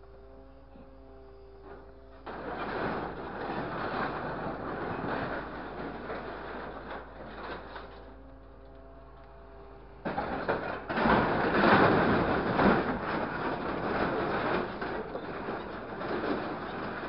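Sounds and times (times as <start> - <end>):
hydraulic whine: 0.0 - 17.0
sheet metal clattering and crunching: 1.7 - 8.2, 10.0 - 17.0.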